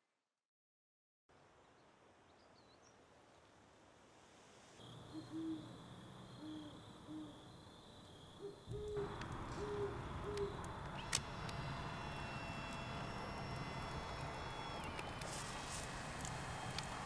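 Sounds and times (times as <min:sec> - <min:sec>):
owl hooting: 0:05.1 - 0:07.5, 0:08.4 - 0:10.7
steady noise with crackles: 0:08.9 - 0:17.0.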